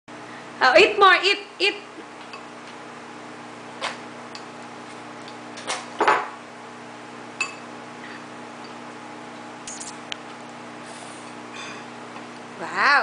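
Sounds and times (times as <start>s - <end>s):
steady low hum: 6.4s - 12.9s.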